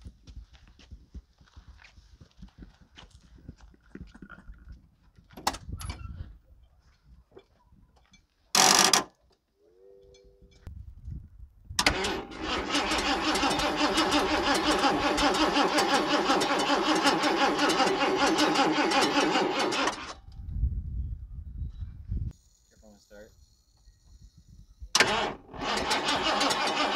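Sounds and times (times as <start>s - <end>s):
car engine cranking on starter: 11.8s - 20.2s, 24.9s - 26.9s.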